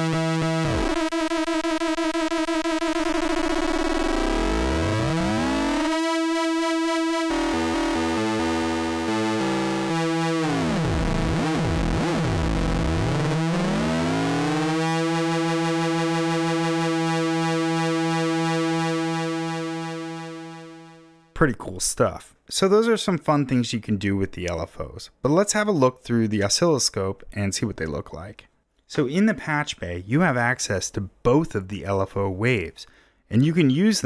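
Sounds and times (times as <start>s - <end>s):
synthesizer tone sweeping: 0.0s - 21.2s.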